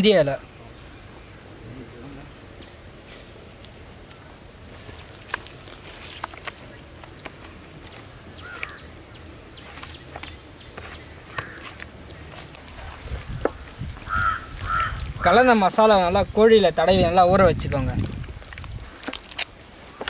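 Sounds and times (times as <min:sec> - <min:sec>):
hands squishing wet paste: 0:02.1 - 0:20.0
bird calling: 0:05.6 - 0:15.5.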